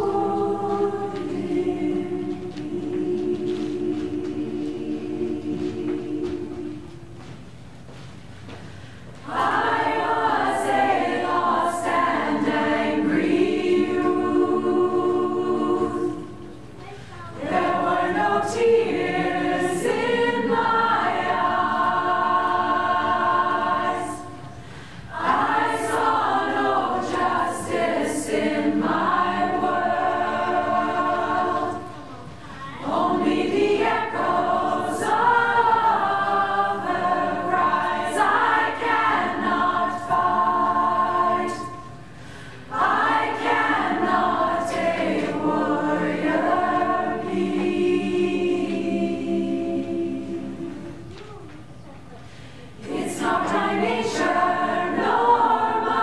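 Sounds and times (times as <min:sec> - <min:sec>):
women's choir singing a cappella: 0:00.0 - 0:07.4, 0:08.5 - 0:51.2, 0:52.2 - 0:56.0.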